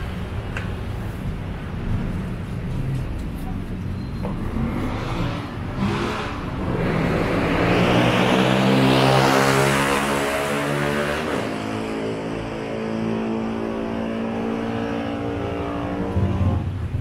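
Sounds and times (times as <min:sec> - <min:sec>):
vehicle engine passing by: 0:04.3 - 0:17.0.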